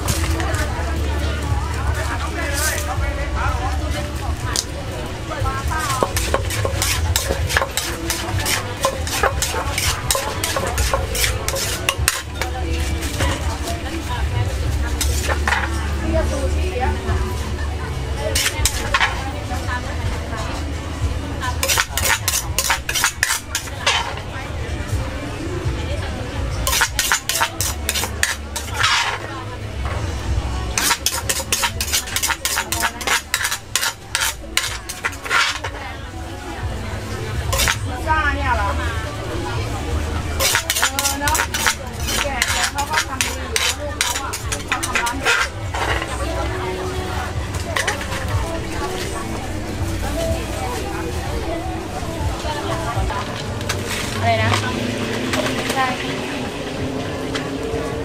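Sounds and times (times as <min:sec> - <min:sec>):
utensils clinking against bowl: 0:04.5 - 0:14.1, 0:14.8 - 0:16.0, 0:18.3 - 0:19.3, 0:21.4 - 0:24.3, 0:26.6 - 0:29.3, 0:30.7 - 0:35.8, 0:37.5 - 0:38.0, 0:40.1 - 0:51.2.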